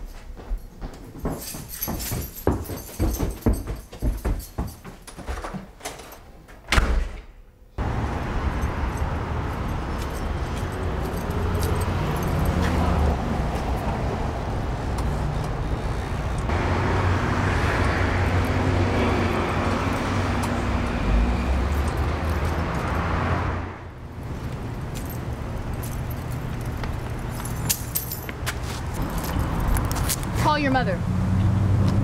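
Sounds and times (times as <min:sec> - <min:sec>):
car engines running: 0:07.8 - 0:32.0.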